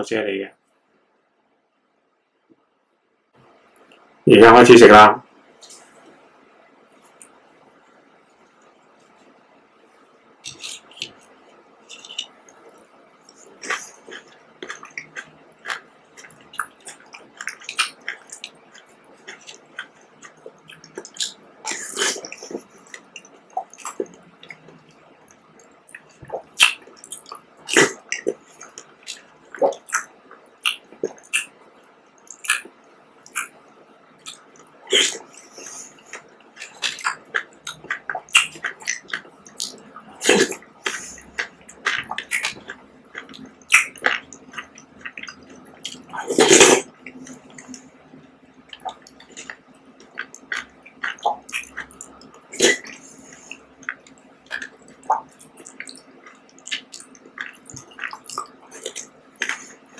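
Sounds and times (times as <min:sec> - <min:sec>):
wet chewing and slurping: 0:10.4 - 0:31.6, 0:32.2 - 0:33.6, 0:34.2 - 0:48.0, 0:48.6 - 0:59.9.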